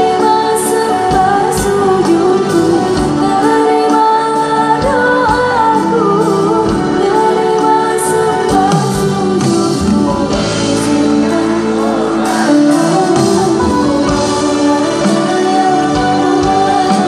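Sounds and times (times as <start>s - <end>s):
keyboard: 0.0s - 17.0s
woman singing: 0.0s - 17.0s
steady drum beat: 8.5s - 17.0s.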